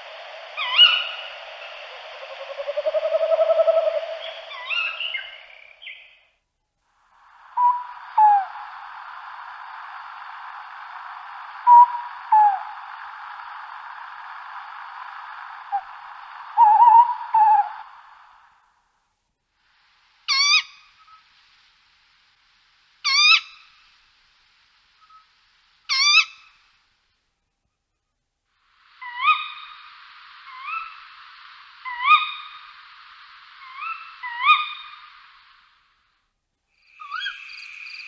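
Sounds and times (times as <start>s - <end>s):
owl calling: 0.0s - 6.2s, 7.3s - 18.5s, 20.3s - 21.2s, 23.0s - 23.8s, 25.9s - 26.6s, 28.9s - 35.7s, 36.8s - 38.0s
steady background hiss: 0.0s - 38.0s.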